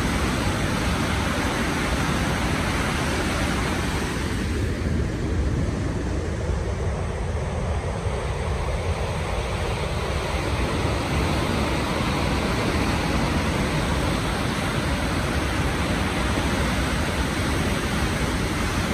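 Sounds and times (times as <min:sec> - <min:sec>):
whitewater rushing over rocks: 0:00.0 - 0:04.5, 0:10.3 - 0:18.9.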